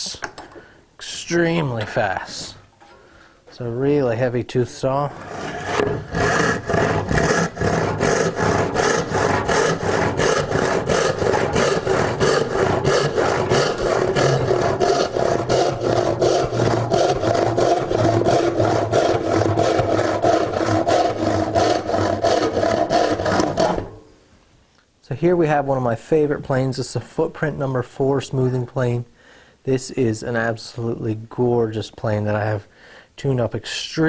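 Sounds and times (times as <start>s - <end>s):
hand saw cutting wood: 5.1s - 24.0s.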